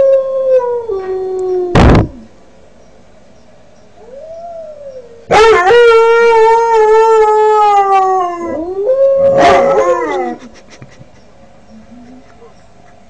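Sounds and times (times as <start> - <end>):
puppy howling: 4.0 - 10.5.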